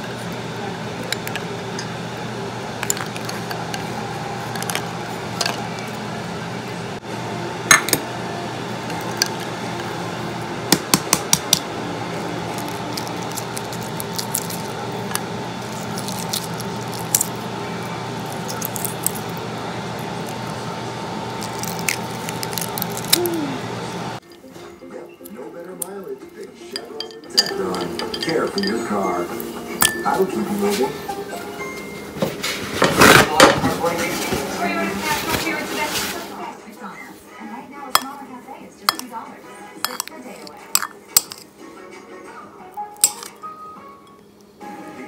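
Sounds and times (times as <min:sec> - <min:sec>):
steady background hum: 0:00.0 - 0:45.0
eggshell cracking: 0:12.4 - 0:20.6, 0:21.4 - 0:23.3, 0:39.9 - 0:41.5, 0:42.9 - 0:43.4
ice clinking against bowl: 0:26.7 - 0:29.2, 0:39.8 - 0:40.2, 0:40.8 - 0:41.5, 0:43.0 - 0:43.4.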